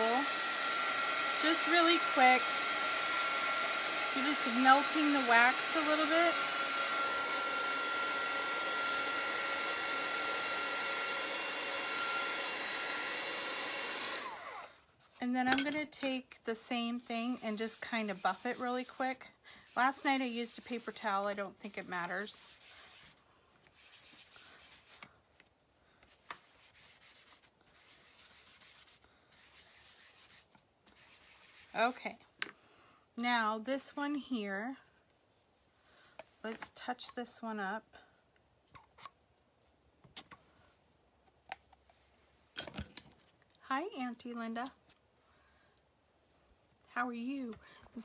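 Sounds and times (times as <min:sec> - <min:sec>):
heat tool blowing air with whine: 0:00.0 - 0:14.7
hand rubbing wax: 0:16.9 - 0:25.1, 0:26.0 - 0:32.0.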